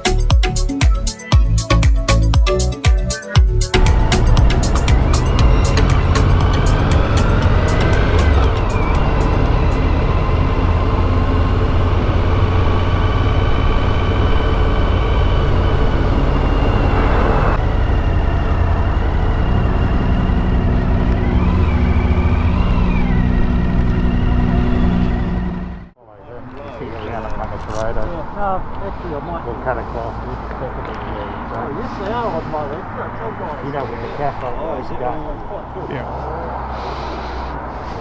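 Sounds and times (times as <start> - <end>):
high wavering tones: 3.5 - 25.8
motorcycle engine rumbling: 3.6 - 38.0.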